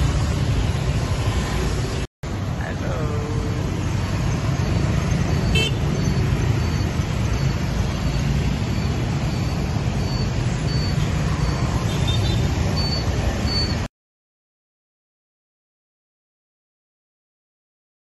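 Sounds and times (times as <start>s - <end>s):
faint high beeps: 4.2s - 13.9s.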